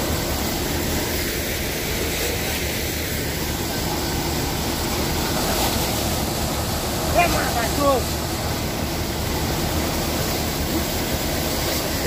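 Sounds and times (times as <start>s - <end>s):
thresher running: 0.0s - 12.0s.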